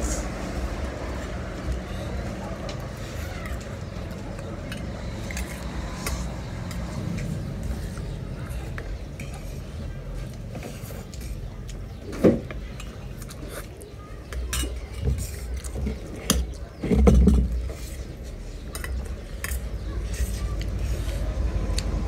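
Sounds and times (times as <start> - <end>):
cutlery and dishes clinking: 14.4 - 17.4, 18.7 - 20.4.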